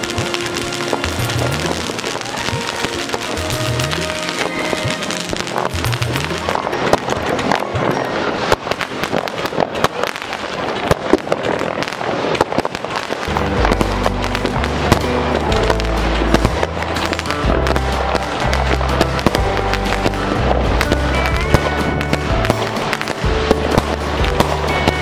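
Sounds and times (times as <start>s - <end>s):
music with heavy bass: 0.0s - 6.9s, 13.2s - 25.0s
fireworks crackling and banging: 0.0s - 25.0s.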